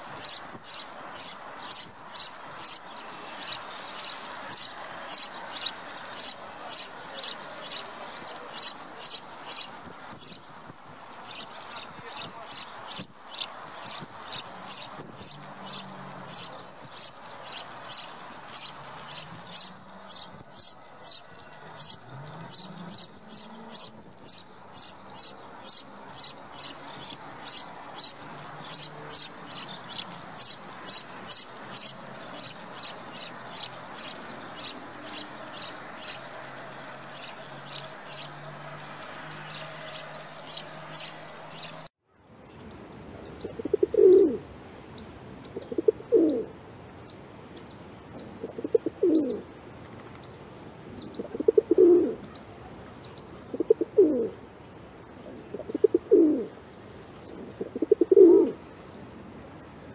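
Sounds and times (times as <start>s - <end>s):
sparrows chirping: 0.0s - 59.9s
dove cooing: 14.4s - 36.2s, 43.4s - 44.5s, 45.6s - 46.5s, 48.2s - 49.5s, 51.0s - 52.4s, 53.4s - 54.4s, 55.2s - 56.6s, 57.2s - 58.6s.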